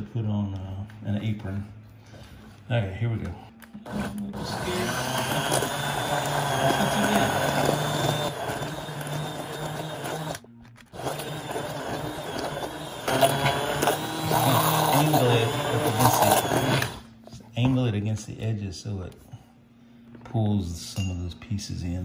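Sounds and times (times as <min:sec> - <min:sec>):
stick blender motor churning: 0:03.8 - 0:17.4.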